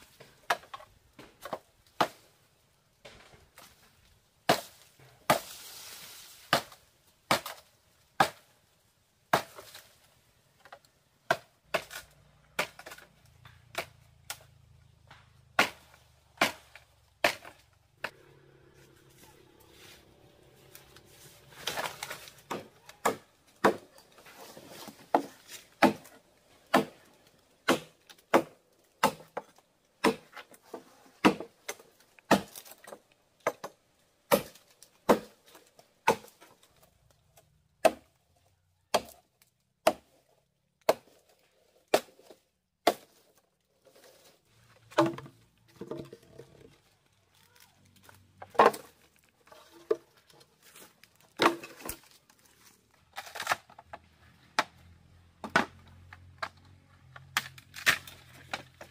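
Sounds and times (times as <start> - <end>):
blade chopping wood: 11.3 - 14.5, 15.1 - 18.2, 21.6 - 24.0, 24.8 - 30.5, 31.2 - 36.5, 41.9 - 43.2, 48.5 - 49.0, 57.2 - 58.9.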